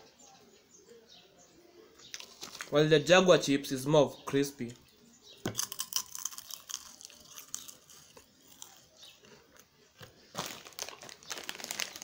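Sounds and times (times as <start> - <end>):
crunching crispy chips: 2.1 - 2.8, 5.5 - 12.0.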